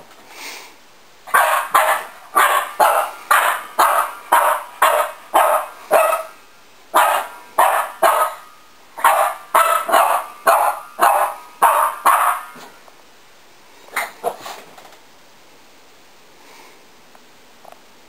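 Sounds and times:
puppy barking: 1.3s - 6.4s, 7.0s - 12.7s, 14.0s - 14.5s.

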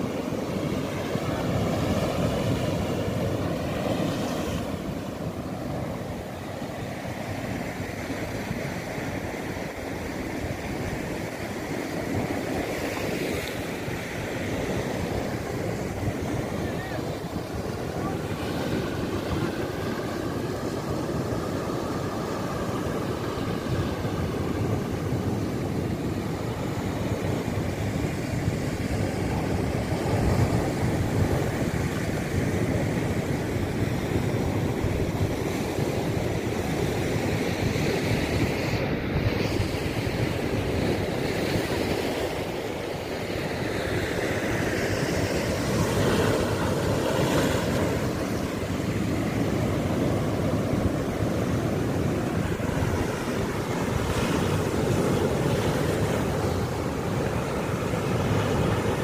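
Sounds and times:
sea waves breaking on rocks: 39.9s - 59.0s.

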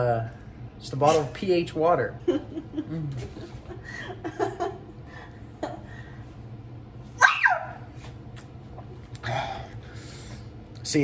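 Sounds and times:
woman giggling: 2.2s - 6.0s.

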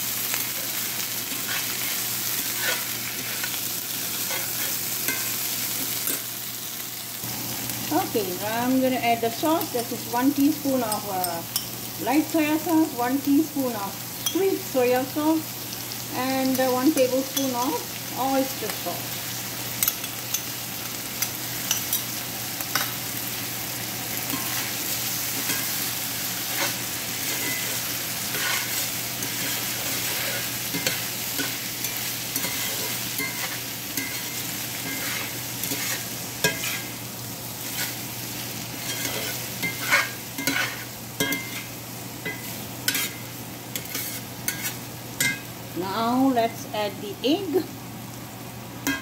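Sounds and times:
food sizzling in a skillet: 0.0s - 49.0s
metal spatula scraping a pan: 0.4s - 6.2s, 26.4s - 36.9s, 37.6s - 38.0s, 38.8s - 41.7s, 42.3s - 45.3s.

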